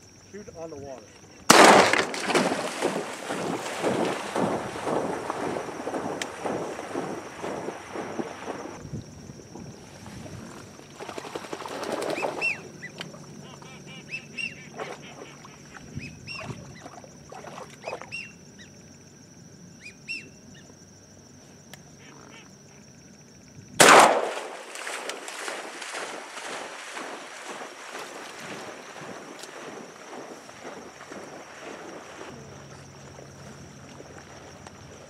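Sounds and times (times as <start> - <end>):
dog splashing through water: 1.9 - 8.8, 14.7 - 18.1, 24.3 - 35.0
wind buffeting microphone: 2.8 - 10.9
whistled duck calls: 12.1 - 17.0, 17.8 - 18.4, 19.8 - 20.4, 22.0 - 22.8.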